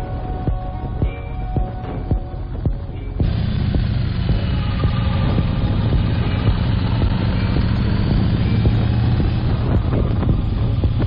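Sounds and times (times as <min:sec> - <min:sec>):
motorcycle engine running: 0:00.0 - 0:11.0
wind rush on microphone: 0:02.7 - 0:11.0.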